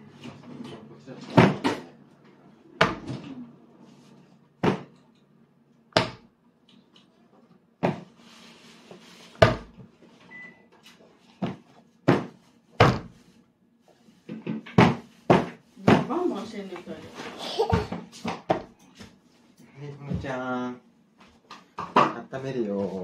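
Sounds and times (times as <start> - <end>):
hand slapping table: 2.8 - 3.3, 4.6 - 5.0, 5.9 - 6.3, 9.4 - 9.8, 11.4 - 13.2, 14.7 - 16.2.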